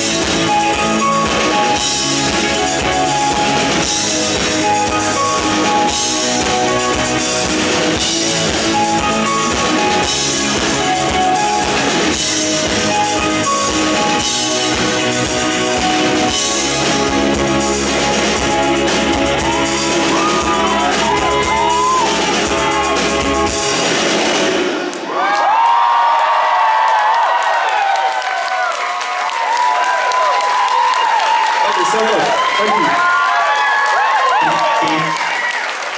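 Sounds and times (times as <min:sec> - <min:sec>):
live rock band playing: 0:00.0 - 0:25.0
crowd cheering and whooping: 0:19.1 - 0:24.1, 0:24.8 - 0:35.9.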